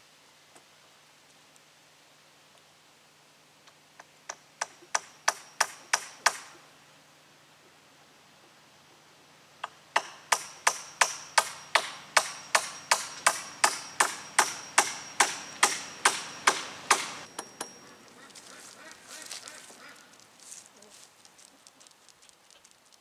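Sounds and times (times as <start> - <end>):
hammer driving nail into wood: 4.3 - 6.5, 9.6 - 17.7
high metallic ring: 10.5 - 18.1
rustling in dry leaves: 11.6 - 23.0.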